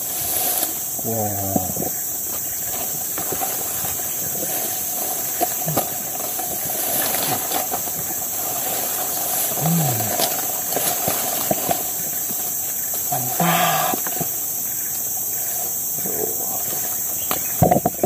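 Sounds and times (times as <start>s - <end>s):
insects droning: 0.0s - 18.0s
twigs snapping and leaves rustling: 0.1s - 14.5s
man grunting: 13.1s - 14.0s.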